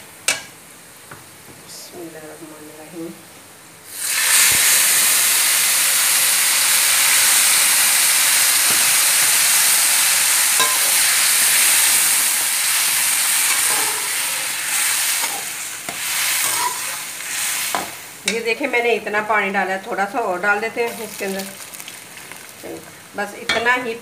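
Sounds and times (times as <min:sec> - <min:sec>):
water sizzling in hot pan: 0:03.8 - 0:18.7, 0:20.4 - 0:23.9
spoon scraping and stirring: 0:10.6 - 0:11.0, 0:13.5 - 0:14.2, 0:15.2 - 0:17.9.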